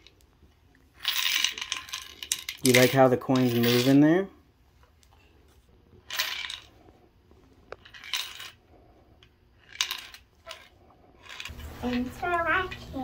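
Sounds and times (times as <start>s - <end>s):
coins clinking in piggy bank: 1.0s - 4.2s, 6.0s - 6.8s, 7.8s - 8.6s, 9.6s - 12.8s.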